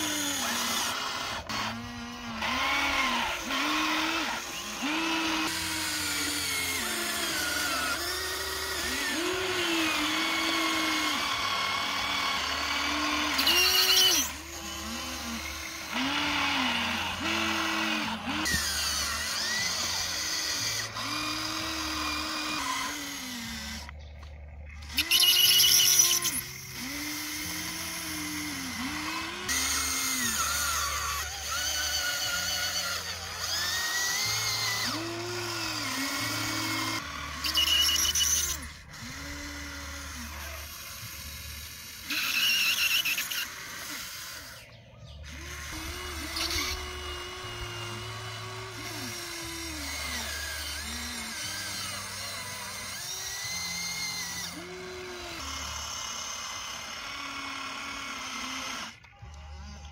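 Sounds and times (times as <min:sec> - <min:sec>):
electric motors whining: 0:00.0 - 0:59.9.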